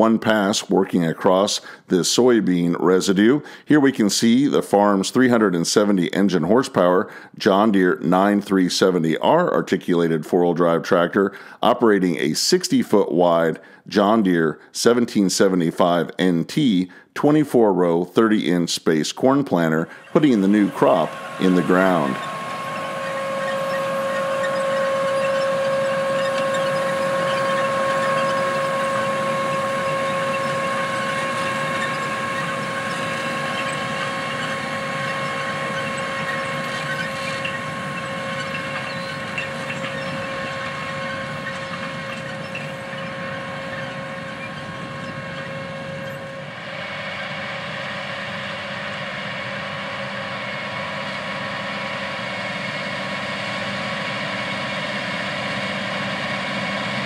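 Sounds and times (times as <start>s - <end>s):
tractor engine drone: 0.0s - 18.5s, 19.2s - 57.0s
high whine: 19.5s - 57.0s.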